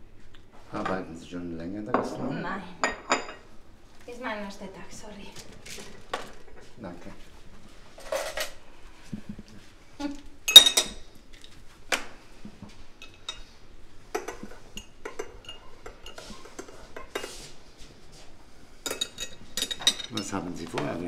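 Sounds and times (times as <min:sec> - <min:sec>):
porcelain cup and saucer clinking: 0:01.9 - 0:03.4, 0:10.5 - 0:11.0, 0:14.2 - 0:17.3, 0:18.8 - 0:20.8
teaspoon stirring in cup: 0:14.2 - 0:17.5.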